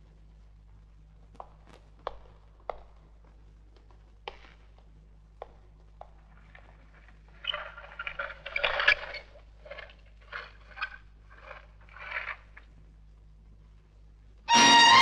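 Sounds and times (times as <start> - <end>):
trolley wheels rattling and scraping: 6.5 - 12.6.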